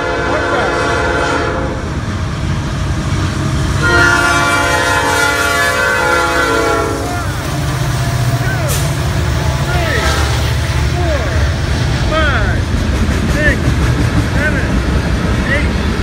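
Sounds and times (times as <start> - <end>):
locomotive air horn: 0.0 - 1.9, 3.8 - 9.0, 9.8 - 10.6
diesel engine rumble: 0.0 - 16.0.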